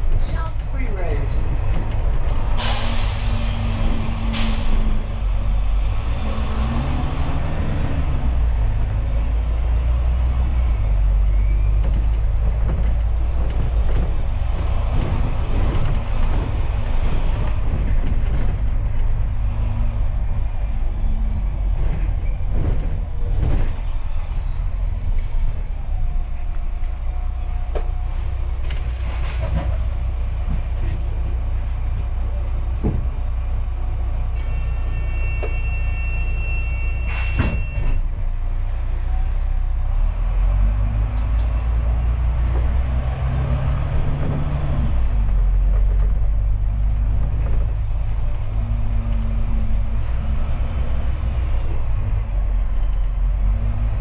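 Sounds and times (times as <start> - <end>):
bus engine and road rumble: 0.0 - 54.0
bodywork knocking and rattling: 21.7 - 23.9.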